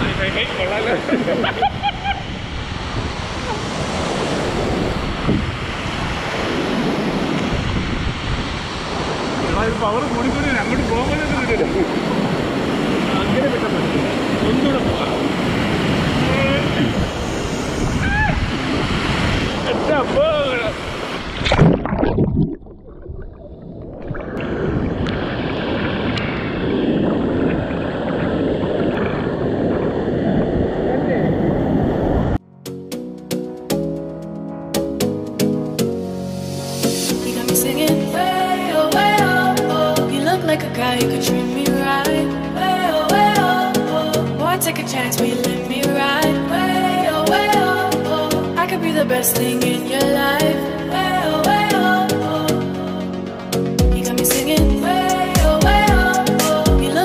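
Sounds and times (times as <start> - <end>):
waterfall rushing: 0.0 - 22.2.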